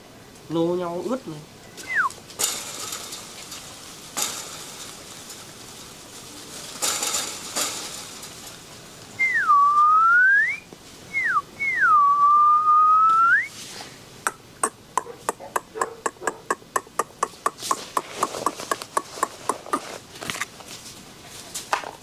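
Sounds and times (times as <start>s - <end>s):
soft rustles: 1.7s - 10.0s, 10.6s - 11.1s, 13.5s - 14.0s, 17.6s - 22.0s
person whistling: 9.2s - 13.5s.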